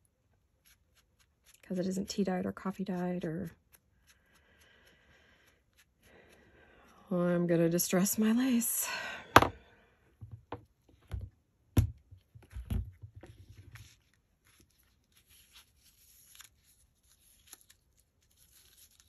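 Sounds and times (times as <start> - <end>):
knocks on a table: 9.3 - 9.6
lace and paper rustling: 13.2 - 19.0.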